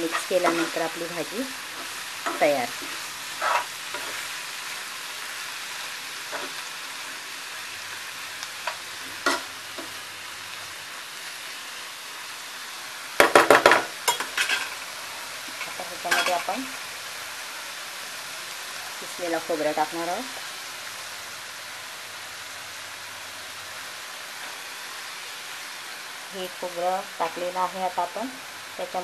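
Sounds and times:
spatula scraping and knocking pan: 0.0 - 0.9, 1.7 - 4.2
greens sizzling in pan: 0.0 - 29.0.

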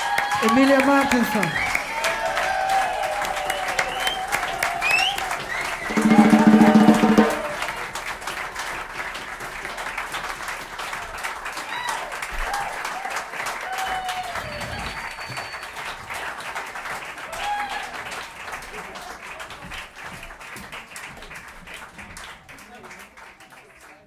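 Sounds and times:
person cheering: 0.0 - 7.9, 17.3 - 17.9
whoops: 0.0 - 7.9, 11.6 - 15.8, 17.3 - 18.0
audience applauding: 0.0 - 24.0.

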